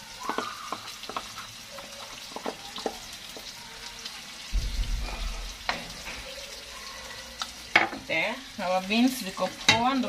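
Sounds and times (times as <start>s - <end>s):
sizzling pot: 0.0s - 10.0s
low rumble: 4.5s - 6.1s.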